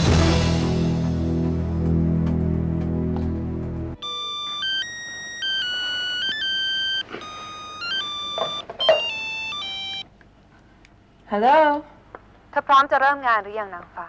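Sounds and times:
low heavy trailer music: 0.0s - 4.0s
phone ringtone beeping melody: 4.0s - 10.1s.

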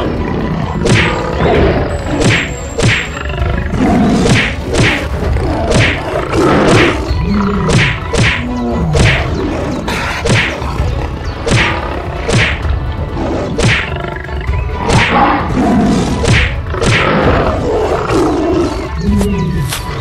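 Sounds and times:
background music: 0.0s - 20.0s
whip-crack strikes: 0.8s - 1.2s, 2.2s - 3.1s, 4.2s - 5.1s, 5.7s - 6.0s, 7.7s - 8.4s, 9.0s - 9.3s, 10.3s - 10.6s, 11.5s - 12.6s, 13.6s - 13.9s, 16.2s - 17.1s.

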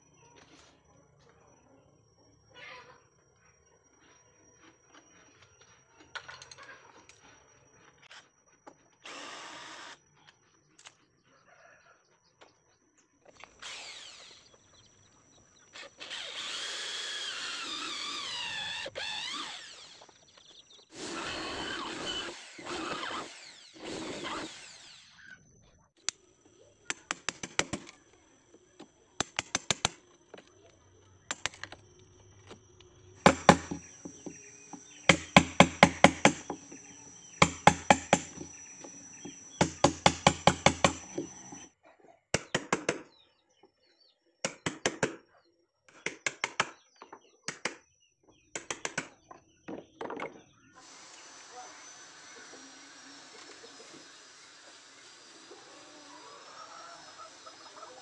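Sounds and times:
hammer striking wood chisel: 26.9s - 27.9s, 29.2s - 30.0s, 31.3s - 31.6s, 33.2s - 36.7s, 37.4s - 41.7s, 42.4s - 43.1s, 44.5s - 45.2s, 45.9s - 46.8s, 48.6s - 49.2s.

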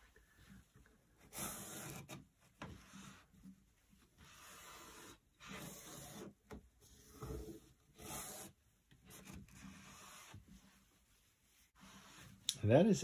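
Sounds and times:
cloth swishing over wooden board: 9.2s - 12.4s.

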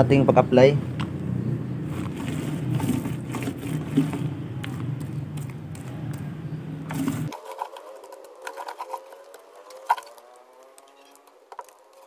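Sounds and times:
low engine-like hum: 0.0s - 7.3s
paint roller dabbing: 1.9s - 6.2s, 6.8s - 9.9s.

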